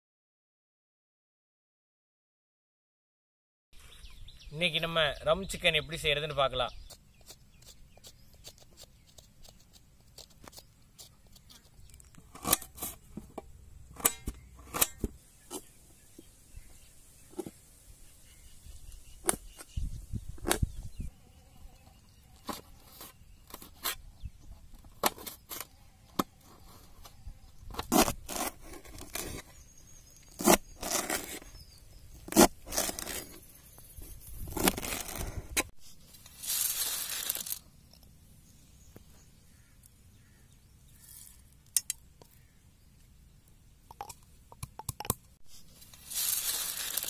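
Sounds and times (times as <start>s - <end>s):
knife scraping metal plate: 6.8s - 13.2s, 14.0s - 15.7s.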